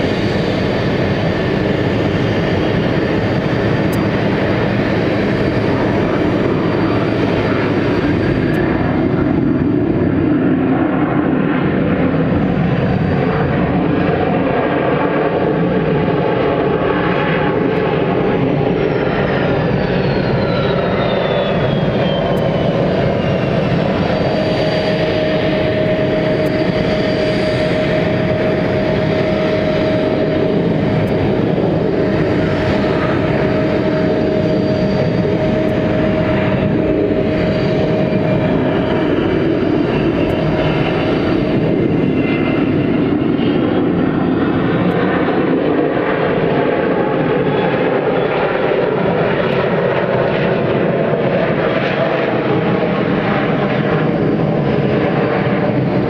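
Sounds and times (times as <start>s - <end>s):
jet engines rumbling: 0.0s - 56.0s
high whine gliding down: 16.6s - 45.6s.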